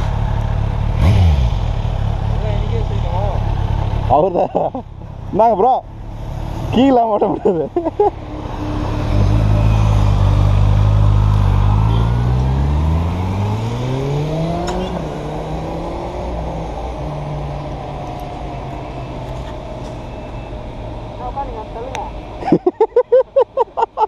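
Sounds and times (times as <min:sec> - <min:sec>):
motorcycle engine accelerating: 0:00.0 - 0:04.8, 0:08.0 - 0:20.6.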